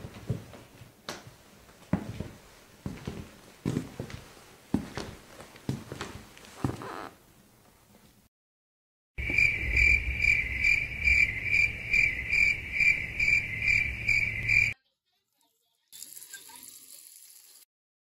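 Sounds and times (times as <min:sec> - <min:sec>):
cricket chirping: 0:09.2 - 0:14.8
tap water running into a bowl: 0:15.9 - 0:17.7.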